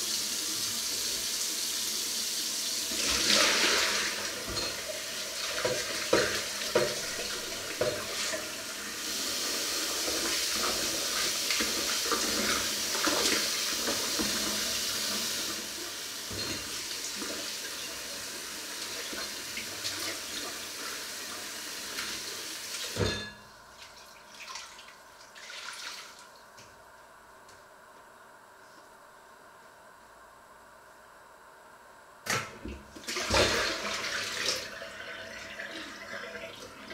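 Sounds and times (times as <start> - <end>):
pots and dishes clinking: 4.4 - 8.3, 16.3 - 16.8, 22.9 - 23.5.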